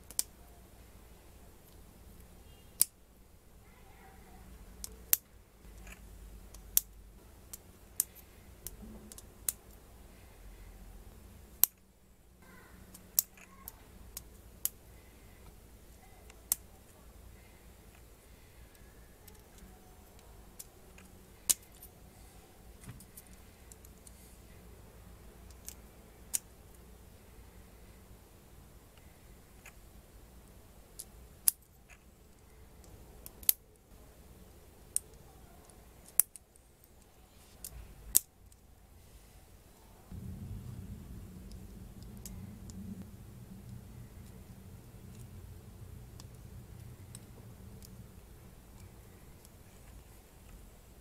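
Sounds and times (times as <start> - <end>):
plastic pieces clicking together: 0.0 - 0.3, 31.0 - 33.6.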